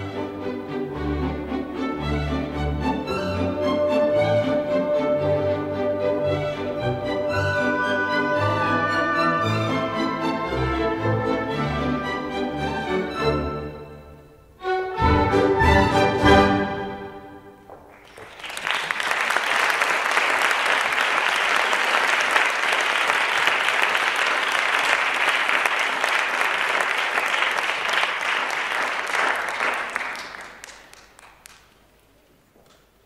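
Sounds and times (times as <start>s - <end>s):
orchestral music: 0.0s - 17.5s
audience applause: 7.0s - 11.4s, 17.8s - 31.8s.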